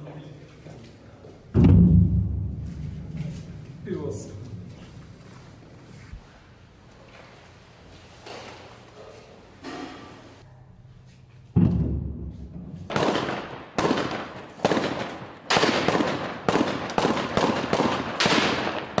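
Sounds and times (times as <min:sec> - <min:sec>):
heavy boom: 0:01.6 - 0:05.0
echoing gunshot cracks: 0:12.9 - 0:19.0.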